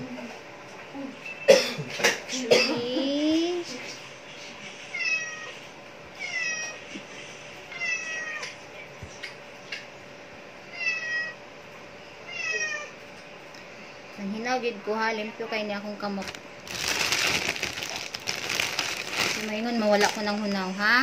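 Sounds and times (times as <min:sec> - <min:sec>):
cat meowing: 0:12.3 - 0:13.0.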